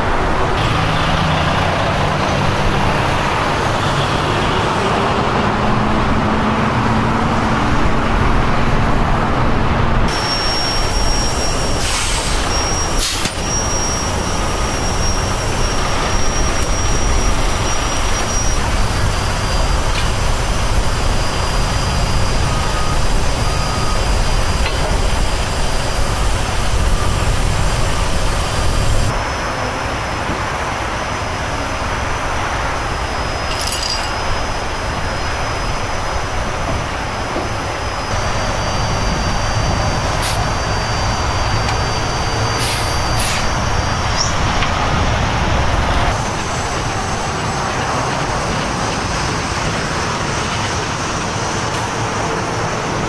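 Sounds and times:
diesel trucks rumbling: 0.0 - 53.0
freeway traffic noise: 0.0 - 53.0
high-pitched hisses or squeals: 10.1 - 29.8, 32.8 - 45.0.

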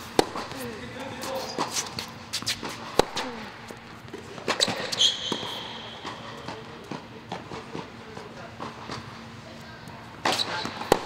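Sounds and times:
shoe squeaking on court: 0.0 - 6.7, 10.2 - 11.0
racket striking tennis ball: 0.0 - 7.9, 10.2 - 11.0
tennis ball bouncing: 0.0 - 9.1, 10.2 - 11.0.

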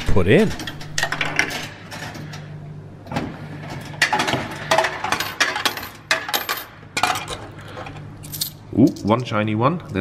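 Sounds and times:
coin slot clicks: 0.0 - 2.4, 3.7 - 7.4
vending machine hum: 0.0 - 10.0
coins clinking into cup: 4.7 - 7.4, 8.2 - 9.1.

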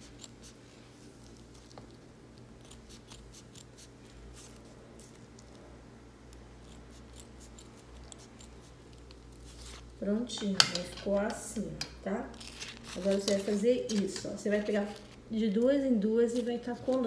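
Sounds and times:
scissors snipping foam: 2.6 - 5.6.

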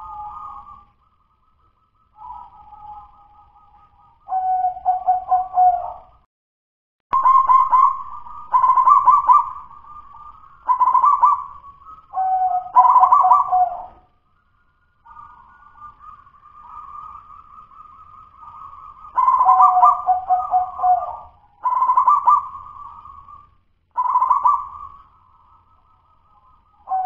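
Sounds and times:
dove cooing: 0.0 - 0.8, 4.3 - 6.2, 7.2 - 14.1, 15.1 - 23.4, 24.0 - 25.2.

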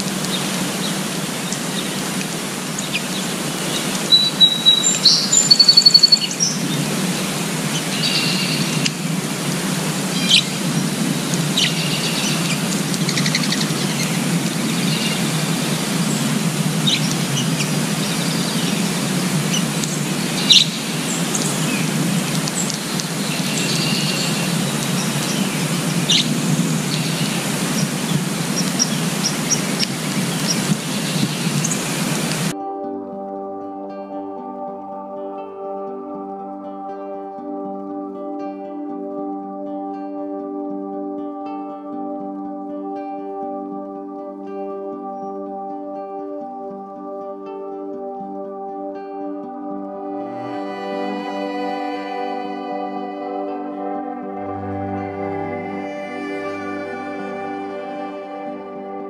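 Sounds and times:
songbirds chirping: 0.0 - 39.9, 40.5 - 59.0
outdoor background noise: 0.0 - 59.0
rapid bird trill: 2.7 - 9.1, 10.1 - 32.5.

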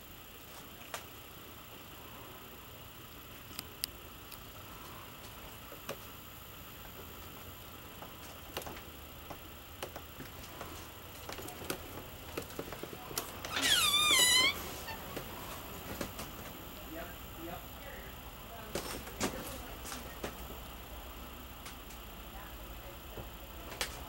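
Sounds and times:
light clicks and ticks: 3.5 - 4.5.

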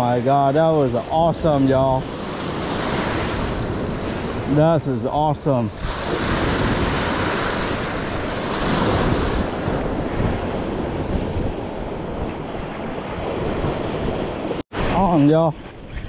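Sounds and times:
wind buffeting microphone: 0.0 - 16.0
small waves breaking on sand: 1.5 - 4.6, 5.6 - 14.6.

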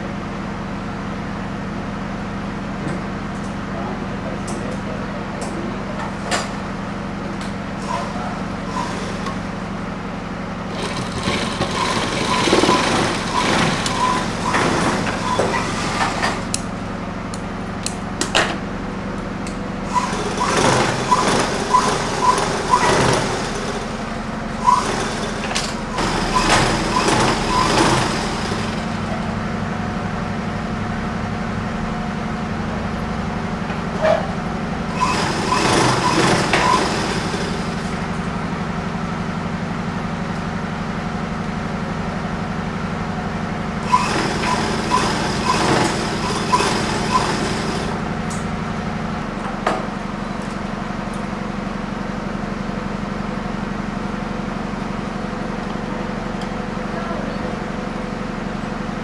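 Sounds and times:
sewing machine motor hum: 6.7 - 18.2, 18.9 - 29.9, 34.6 - 49.4.

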